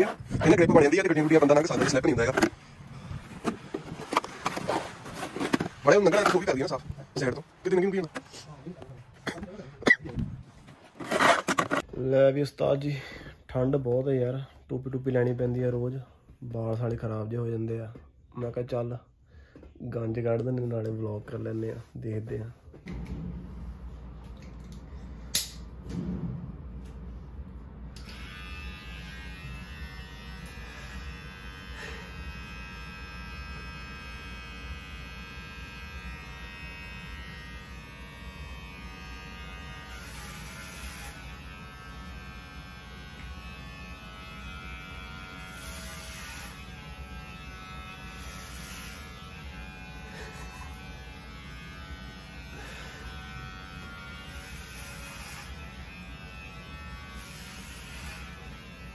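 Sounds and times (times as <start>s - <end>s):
sharp click: 24.7s - 25.7s
hair clipper buzzing: 27.9s - 58.9s.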